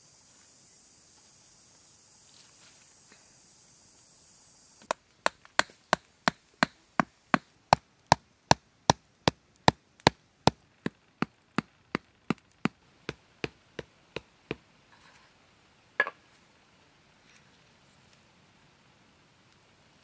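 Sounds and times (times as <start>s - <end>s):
wooden club knocking stake: 4.9s - 9.0s.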